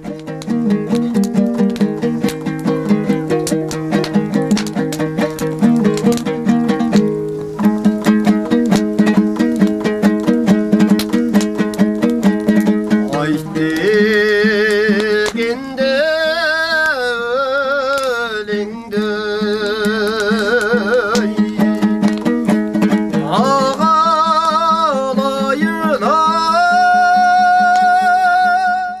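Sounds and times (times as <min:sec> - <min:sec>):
strummed lute: 0:00.0 - 0:29.0
person singing with vibrato: 0:13.1 - 0:21.9, 0:23.1 - 0:29.0.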